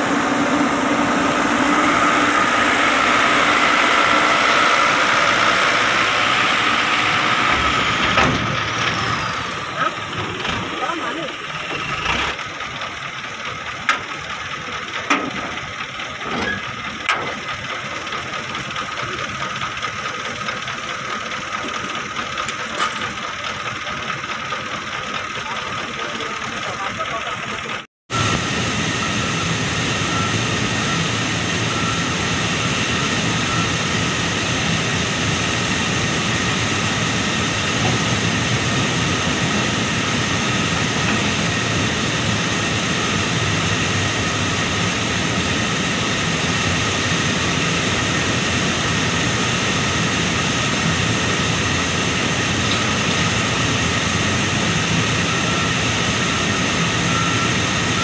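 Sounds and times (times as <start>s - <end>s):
high whines: 0.0s - 12.4s
diesel engine drone: 0.0s - 58.0s.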